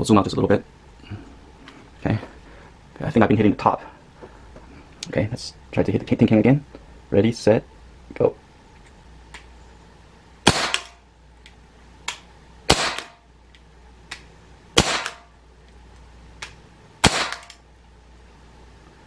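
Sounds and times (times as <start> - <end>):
air pistol cracks: 10.5 - 13.2, 16.4 - 17.6.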